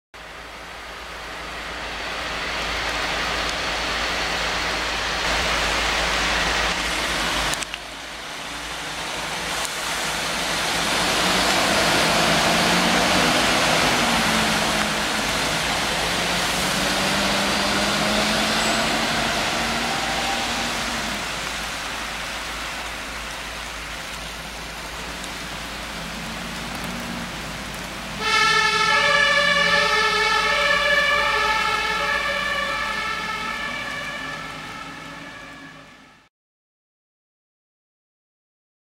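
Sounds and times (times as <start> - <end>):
diesel engines accelerating: 0.2 - 36.2
tyres hissing on wet road: 0.2 - 36.3
two-tone emergency siren: 16.8 - 20.9, 28.2 - 36.3.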